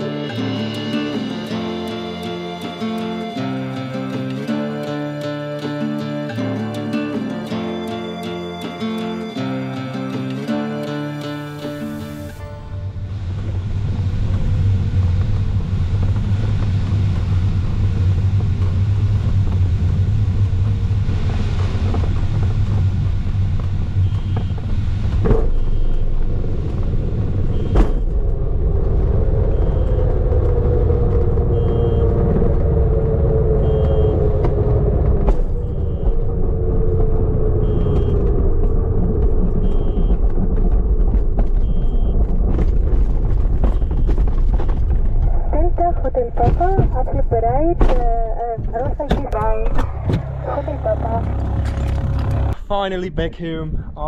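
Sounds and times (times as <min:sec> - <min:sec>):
airflow and cockpit rumble: 0:00.0 - 0:54.0
wheel rolling on runway: 0:13.2 - 0:45.5
short electronic beep: 0:37.6 - 0:38.3, 0:39.6 - 0:40.2.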